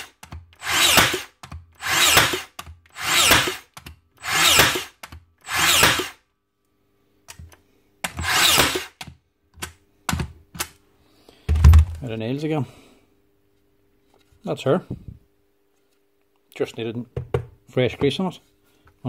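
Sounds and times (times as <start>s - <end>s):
nail gun firing: 0.0s - 6.2s, 8.0s - 9.0s.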